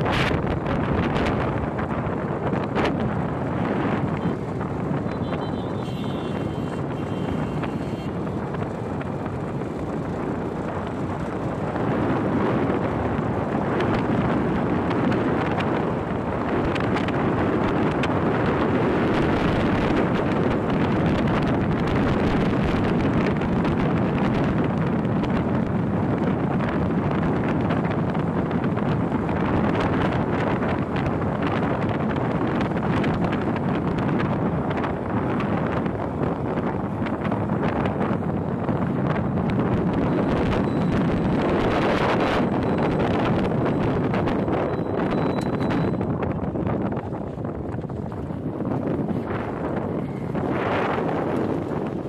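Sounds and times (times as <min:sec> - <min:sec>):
motorcycle engine: 0:00.0 - 0:24.5
wind rush on microphone: 0:00.0 - 0:52.0.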